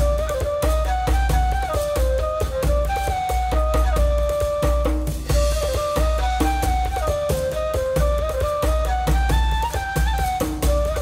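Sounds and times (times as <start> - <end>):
drums: 0.0 - 11.0.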